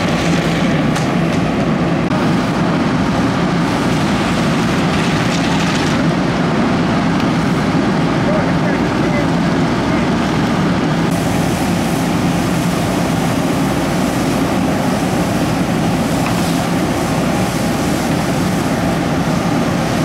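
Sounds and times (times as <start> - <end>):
fire engine pump droning: 0.0 - 20.0
hose spraying water: 11.1 - 20.0.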